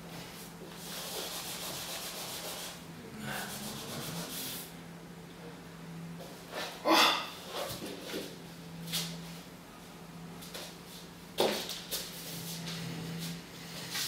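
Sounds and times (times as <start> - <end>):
faint low hum: 0.0 - 6.5
brush scrubbing on canvas: 0.2 - 4.7.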